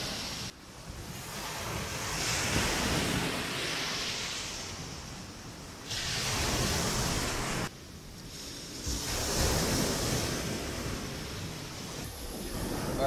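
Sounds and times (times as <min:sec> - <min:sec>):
ocean surf on beach: 0:00.0 - 0:13.0
wind gusting over microphone: 0:00.0 - 0:13.0.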